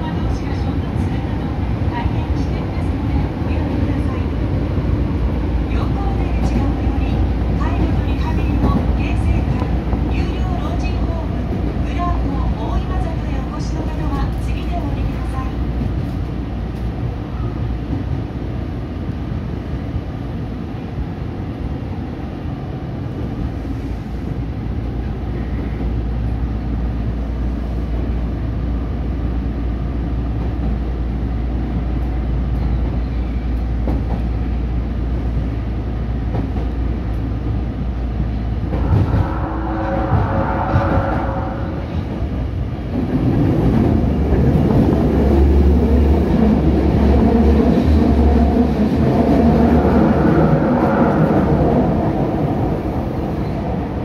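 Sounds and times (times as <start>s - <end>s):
subway train rumbling in tunnel: 0.0s - 54.0s
loud high tones: 38.8s - 42.1s.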